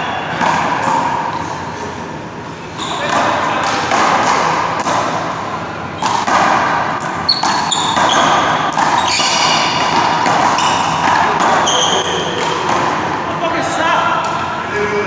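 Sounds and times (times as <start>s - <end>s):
sneaker squeaks: 2.5s - 3.4s, 7.1s - 12.8s.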